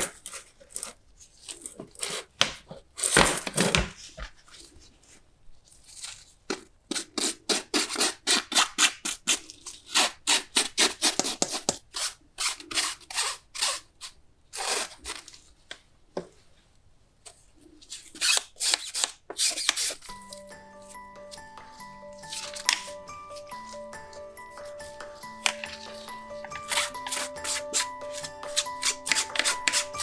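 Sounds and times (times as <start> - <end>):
brush scrubbing a surface: 26.0 - 30.0.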